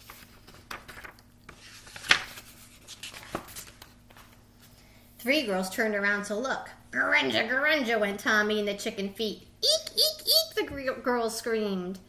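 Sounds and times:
book pages turning: 0.0s - 4.4s
paper snap: 0.1s - 4.4s.

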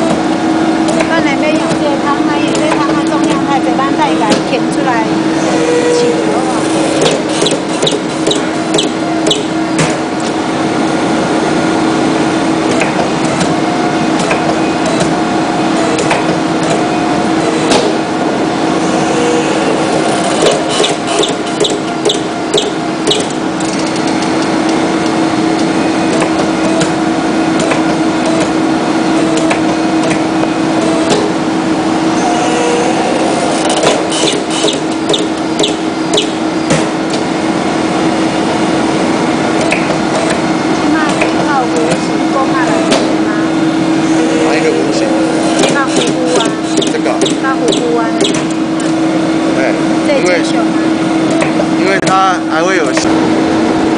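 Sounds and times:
hydraulic press humming: 0.0s - 53.9s
sharp clicks and knocks: 20.4s - 27.0s.

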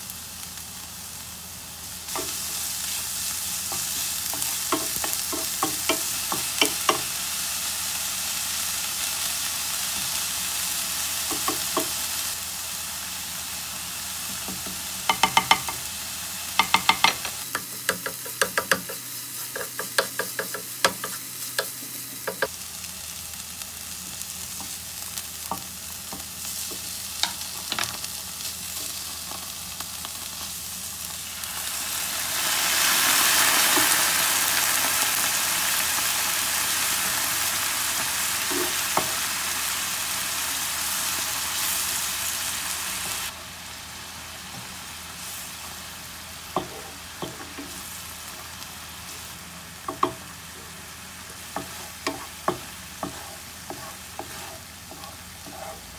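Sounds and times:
onion sizzling in a pan: 0.0s - 55.9s
wooden spatula scraping a pan: 51.4s - 55.9s.

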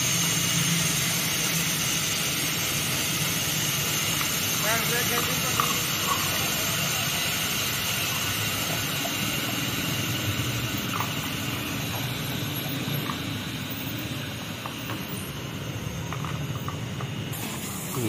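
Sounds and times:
car wash machinery drone: 0.0s - 18.0s
constant hiss: 0.0s - 18.0s.

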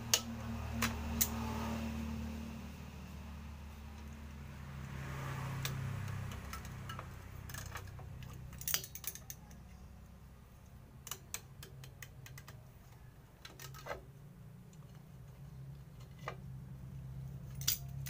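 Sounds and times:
pliers clicking on metal: 0.1s - 1.4s, 5.6s - 9.7s, 11.0s - 12.6s, 17.5s - 18.0s.

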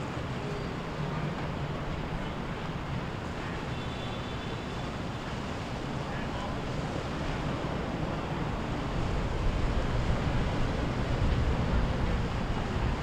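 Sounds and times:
wind buffeting microphone: 7.8s - 13.0s.

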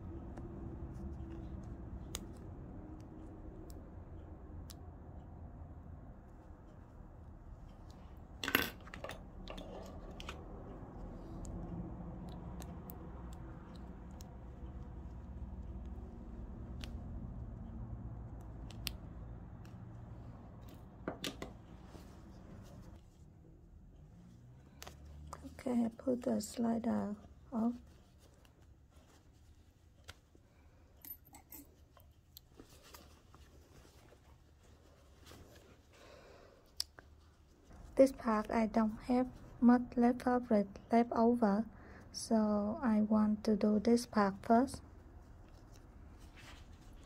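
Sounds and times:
zipper clicks and fabric handling: 8.8s - 10.5s
metal zipper clicks and clatter: 31.0s - 32.2s.

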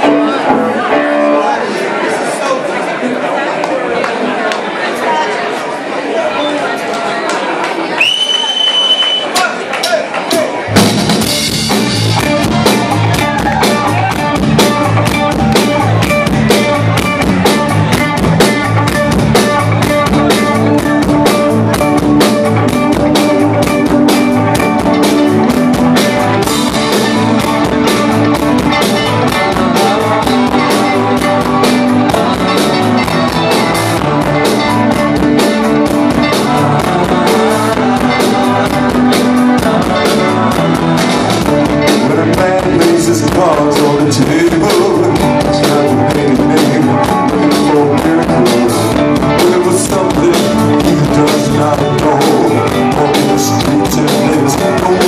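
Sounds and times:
live rock band playing: 0.0s - 2.3s, 10.1s - 55.0s.

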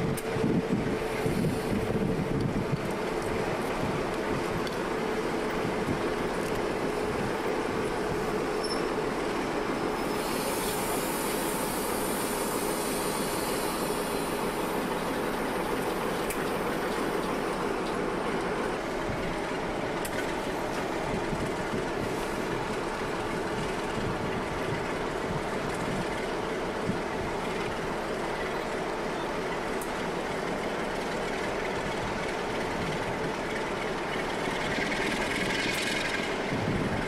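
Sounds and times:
diesel locomotive engine hum: 0.0s - 37.0s
high hiss: 10.0s - 17.6s.

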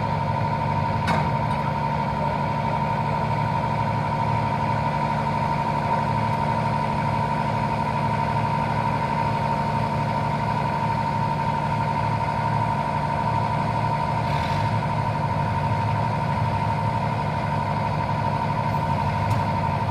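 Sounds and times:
excavator diesel engine running: 0.0s - 19.9s
high hydraulic whine: 13.3s - 15.1s.

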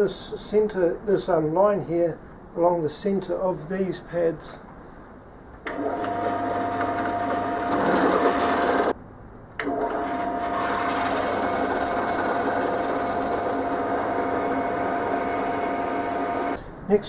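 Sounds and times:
drill press drilling into metal: 5.7s - 8.9s, 9.6s - 16.6s.

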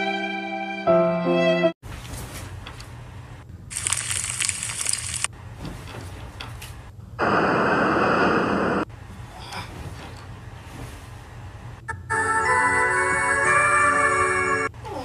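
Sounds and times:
bedding rustling: 1.8s - 3.4s, 4.5s - 6.9s, 9.0s - 11.8s
blizzard wind whistling: 7.2s - 8.9s.

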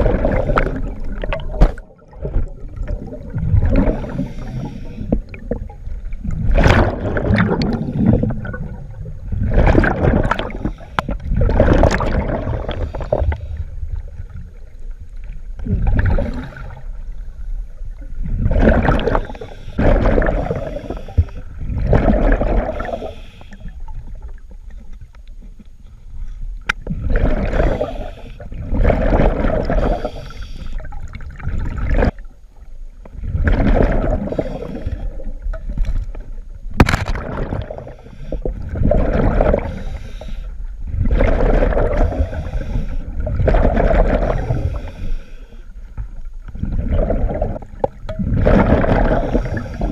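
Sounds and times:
regulator breaths underwater: 0.0s - 1.8s, 3.7s - 5.5s, 10.2s - 13.9s, 18.8s - 23.8s, 26.9s - 31.0s, 33.8s - 35.3s, 37.4s - 45.9s, 48.4s - 49.9s
exhaled bubbles: 0.0s - 17.2s, 17.9s - 24.6s, 26.8s - 32.3s, 33.1s - 45.1s, 46.4s - 49.9s.

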